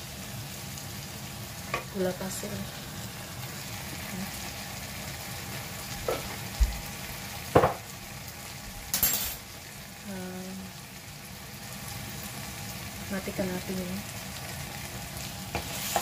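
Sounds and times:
spices sizzling in hot oil: 0.0s - 16.0s
utensil scraping pan: 15.5s - 16.0s.

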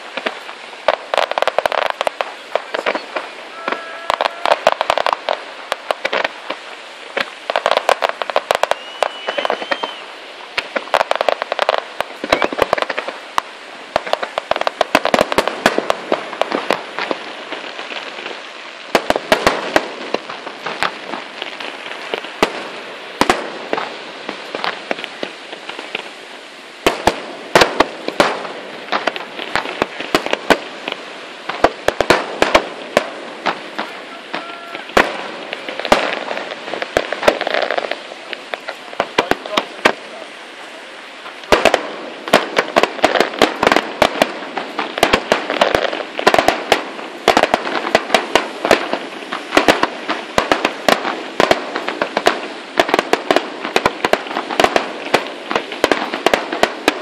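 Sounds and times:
fireworks bursting: 0.0s - 57.0s
firework whistle: 2.8s - 5.4s, 7.8s - 10.2s, 12.2s - 13.0s, 33.8s - 35.3s.

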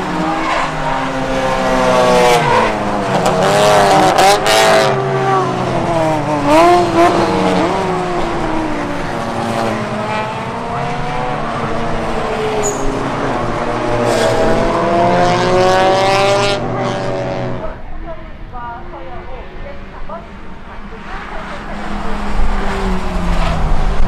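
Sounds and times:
race car engines revving: 0.0s - 24.0s.

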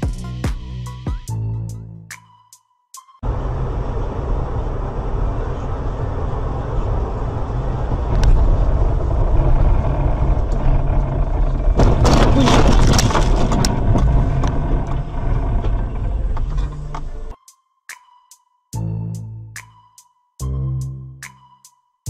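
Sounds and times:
road and engine rumble: 3.2s - 17.4s
collision crunching and scraping: 9.4s - 17.3s.

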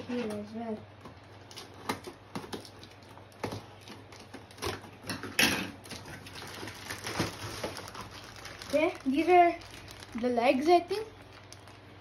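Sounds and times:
packing tape rasp: 5.8s - 10.2s.

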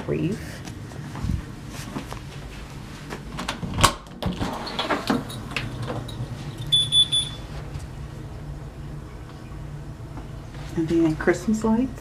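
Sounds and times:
high electronic beeps: 6.7s - 7.4s.

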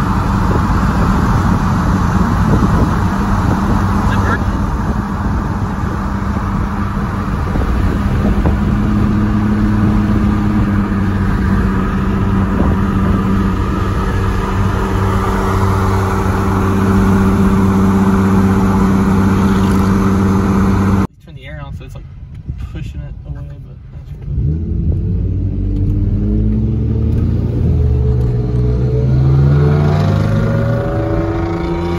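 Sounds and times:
exhaust drone: 0.0s - 21.1s, 23.9s - 31.9s
tyre and wind noise: 0.0s - 23.4s.

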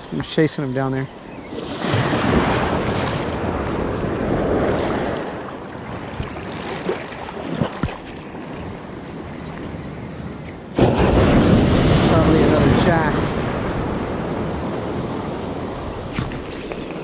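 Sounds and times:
ocean surf washing in: 0.0s - 6.6s, 10.7s - 17.0s
wind buffeting microphone: 0.0s - 17.0s.

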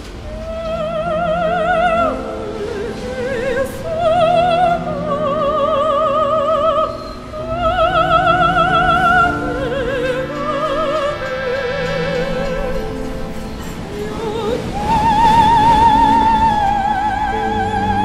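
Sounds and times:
sustained accompaniment: 0.0s - 18.0s
operatic voice singing: 0.2s - 18.0s.

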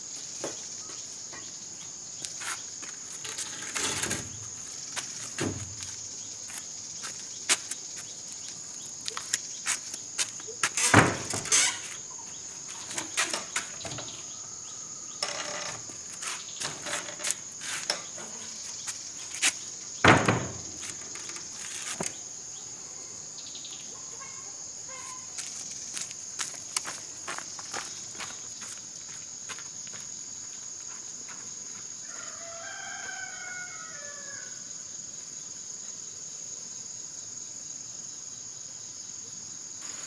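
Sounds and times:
insects chirring: 0.0s - 40.0s
footsteps: 2.2s - 12.0s, 15.3s - 19.7s, 20.4s - 22.2s, 25.0s - 31.9s
loud thumps: 20.0s - 20.8s.

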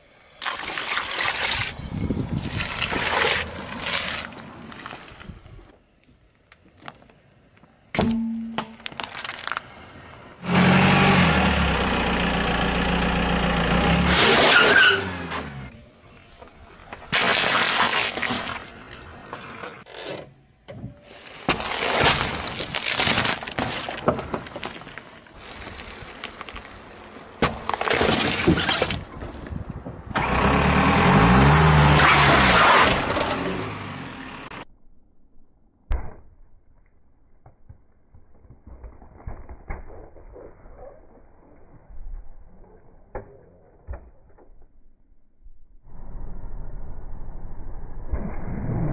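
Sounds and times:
watermelons splitting and squashing: 0.4s - 5.2s, 8.8s - 9.7s, 16.9s - 19.1s, 21.3s - 29.6s, 35.9s - 41.9s
eggs cracking under tyre: 8.6s - 9.8s.

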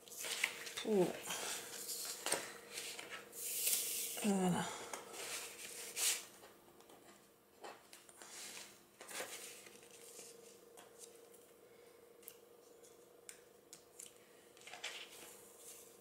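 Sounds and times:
paper rustling: 0.0s - 4.2s, 8.2s - 11.2s, 14.6s - 15.9s
faint steady hum: 0.0s - 16.0s.

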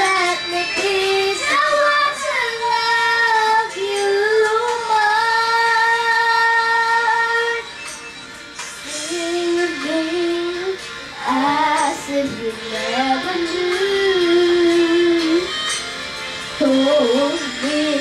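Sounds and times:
woman singing: 0.0s - 7.7s, 8.9s - 15.6s, 16.6s - 18.0s.

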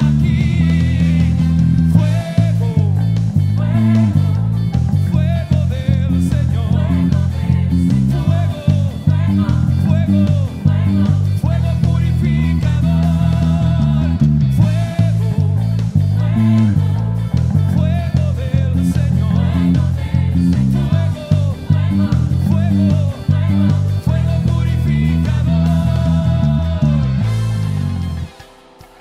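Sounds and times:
syncopated bass line: 0.0s - 28.4s
full band playing: 0.0s - 29.0s.

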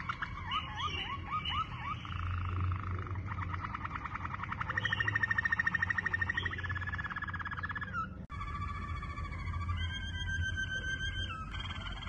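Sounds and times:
canary singing trills: 0.0s - 12.0s.

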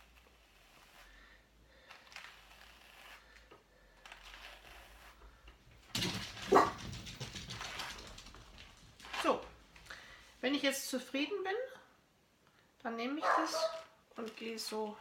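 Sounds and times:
hand carders brushing wool: 0.0s - 5.6s.

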